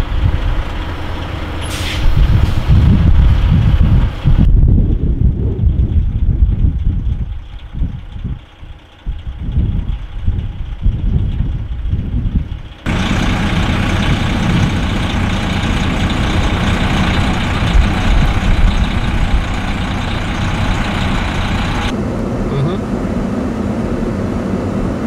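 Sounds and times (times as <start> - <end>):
diesel truck engine running hard: 0.0 - 25.0
tyres spinning on snow: 12.6 - 21.9.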